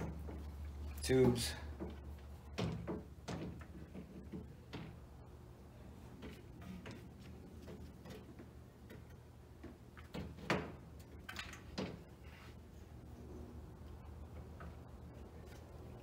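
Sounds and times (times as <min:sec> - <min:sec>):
radiator knocks and clunks: 0:00.0 - 0:05.2
steady low hum: 0:00.0 - 0:16.0.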